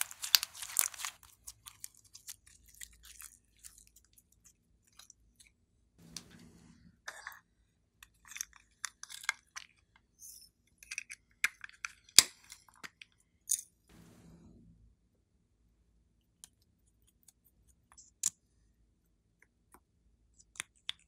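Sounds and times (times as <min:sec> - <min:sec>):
plastic packets crackling: 0:00.0 - 0:03.2.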